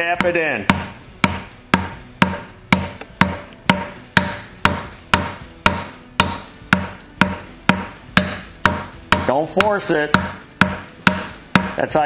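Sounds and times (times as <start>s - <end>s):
hammer handle tapping piston: 0.2s - 11.8s.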